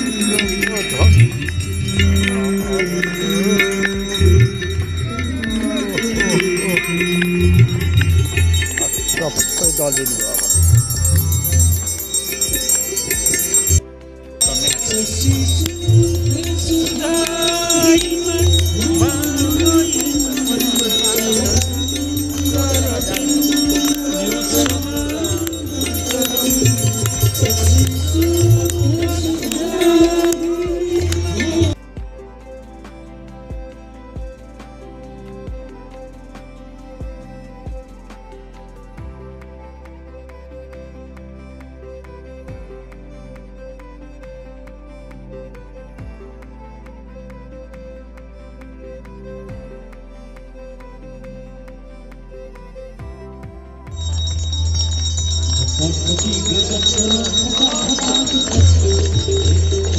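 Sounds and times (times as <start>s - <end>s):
bells ringing: 0.0s - 13.8s, 14.4s - 31.8s, 53.8s - 59.9s
voices singing devotional chant: 0.0s - 13.8s, 14.4s - 31.8s, 54.0s - 59.9s
low drum beats: 0.0s - 32.4s, 35.5s - 35.9s, 37.0s - 38.4s
crowd hand clapping: 53.9s - 59.9s.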